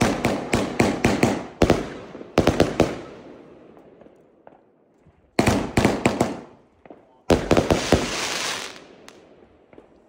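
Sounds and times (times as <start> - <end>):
firework bangs: 5.4 - 9.9.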